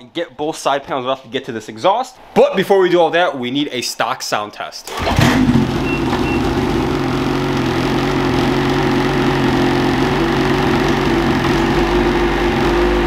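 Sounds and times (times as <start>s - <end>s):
snowmobile engine idling: 5.4s - 13.0s.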